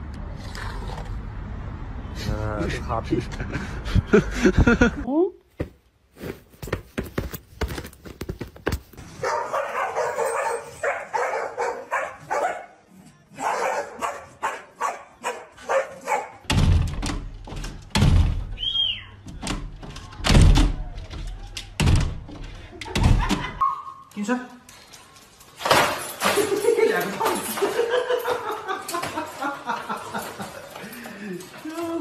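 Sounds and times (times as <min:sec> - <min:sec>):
dogs barking: 0:09.2 - 0:12.8, 0:13.4 - 0:16.5
dog thumping against glass door: 0:16.5 - 0:18.6.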